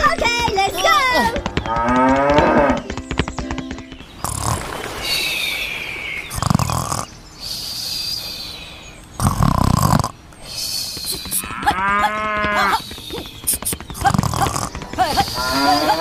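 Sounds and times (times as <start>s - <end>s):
cattle mooing: 1.8s - 2.8s, 11.3s - 12.8s, 14.1s - 16.0s.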